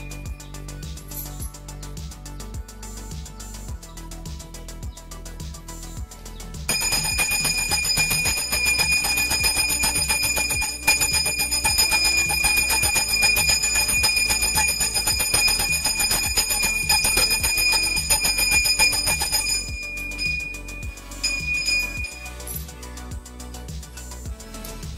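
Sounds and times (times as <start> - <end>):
hand bell ringing fast: 6.7 - 22.7.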